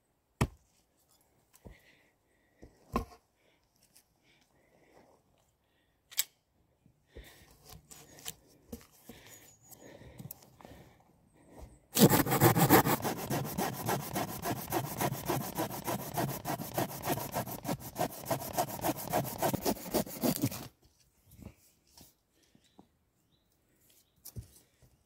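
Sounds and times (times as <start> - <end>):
hand saw cutting wood: 12.0 - 20.7.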